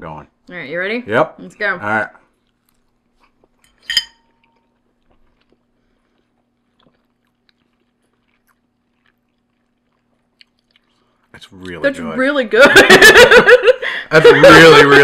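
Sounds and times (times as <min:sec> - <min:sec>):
quiet chewing: 0:02.2 - 0:11.8
metal fork clinking on plate: 0:03.6 - 0:04.6.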